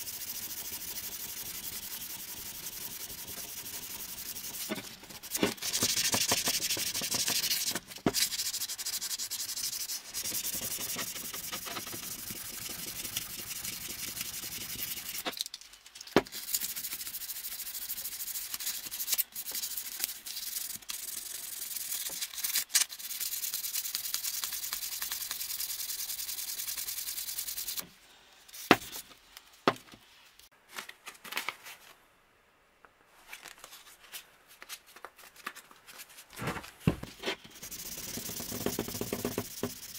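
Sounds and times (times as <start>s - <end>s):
sandpaper rubbing on metal: 0.0s - 15.3s, 16.4s - 27.8s, 37.3s - 39.9s.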